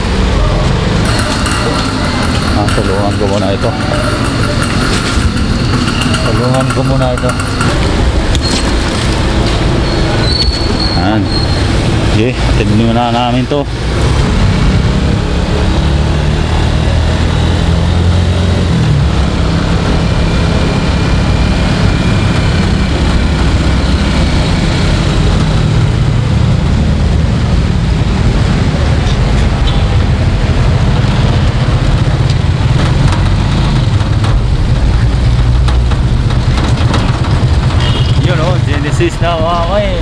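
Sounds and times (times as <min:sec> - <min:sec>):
street traffic: 0:00.0 - 0:40.0
vehicle engine drone: 0:00.0 - 0:40.0.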